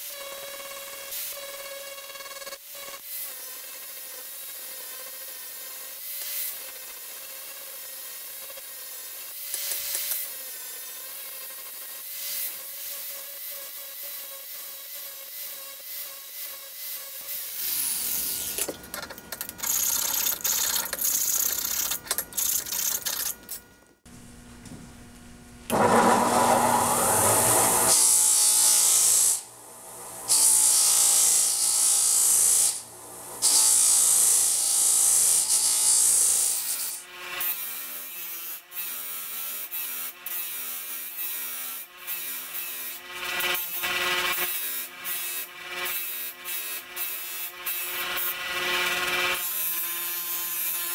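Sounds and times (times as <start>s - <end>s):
bench grinder grinding metal: 0.0s - 23.8s, 25.7s - 50.9s
angle grinder sanding metal: 5.4s - 18.8s.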